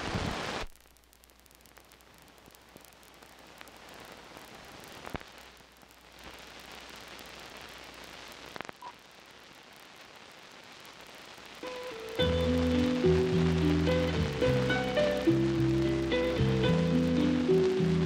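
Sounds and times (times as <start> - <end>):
film soundtrack hiss and crackle: 0.0 - 18.0
sharp pops: 0.1 - 9.1.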